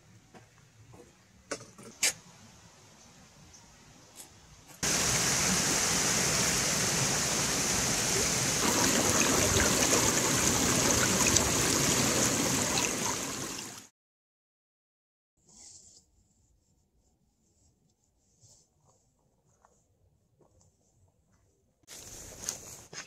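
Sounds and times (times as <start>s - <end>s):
stream water rushing: 4.8s - 13.9s.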